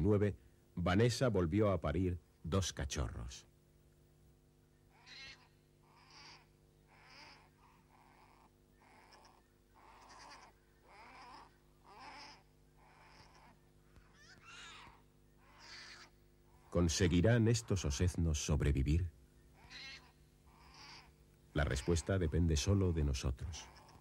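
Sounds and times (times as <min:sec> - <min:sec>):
bear cubs squealing: 0:04.8 - 0:18.6, 0:19.4 - 0:24.0.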